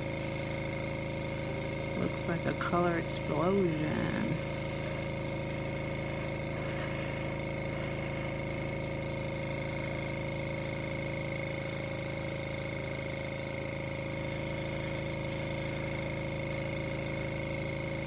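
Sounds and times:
air compressor hum: 0.0s - 18.0s
airbrush hissing: 0.0s - 18.0s.

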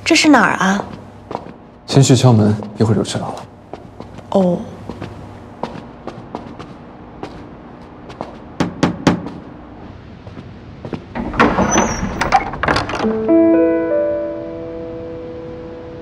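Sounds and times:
knocking on a door: 8.2s - 9.5s
door unlatching and opening: 11.1s - 13.2s
background music with held notes: 13.0s - 16.0s.

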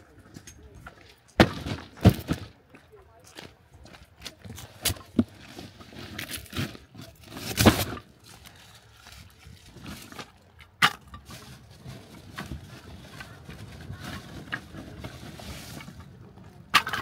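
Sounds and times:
cardboard rustling and knocks: 1.4s - 2.5s.

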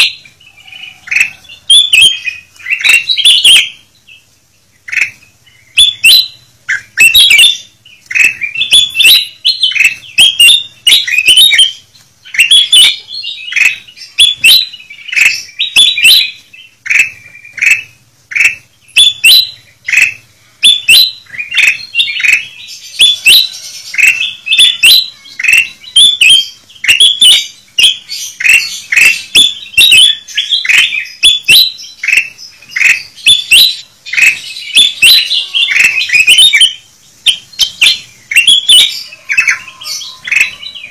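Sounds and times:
birds chirping noisily: 0.0s - 40.9s.

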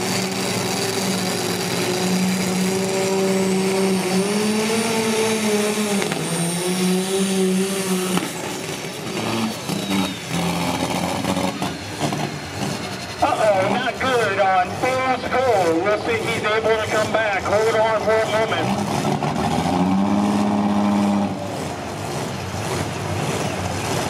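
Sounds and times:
tractor diesel engine at high revs: 0.0s - 24.0s.

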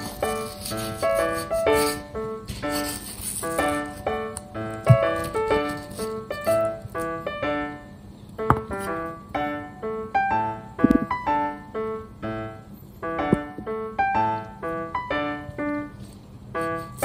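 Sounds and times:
light piano tune: 0.0s - 17.0s
short knocks: 8.4s - 8.8s.

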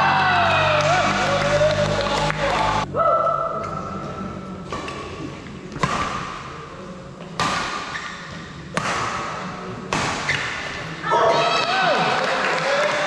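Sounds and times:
rackets hitting shuttlecock: 3.6s - 6.6s, 7.3s - 10.9s.

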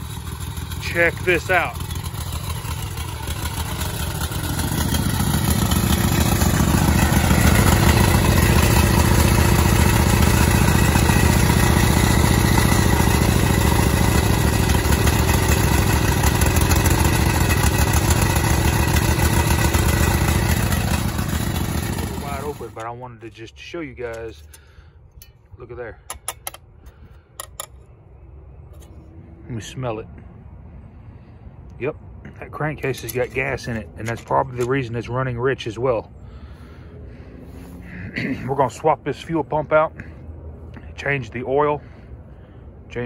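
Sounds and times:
mower engine running: 0.0s - 23.4s, 32.5s - 35.1s.

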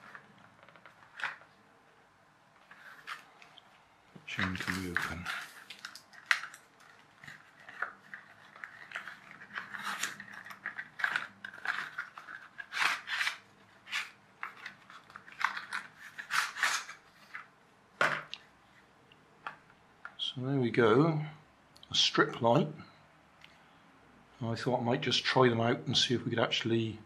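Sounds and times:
cardboard rustling and crinkling: 0.0s - 1.6s, 2.6s - 17.5s.

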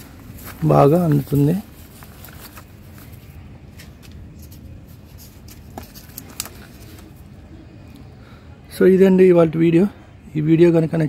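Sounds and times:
pots rustling in soil: 0.0s - 7.2s.

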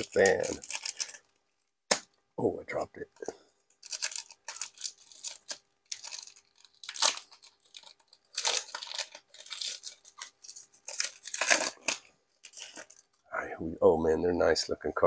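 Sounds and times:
wrapper torn open and crinkled: 0.0s - 2.0s, 3.7s - 13.1s.

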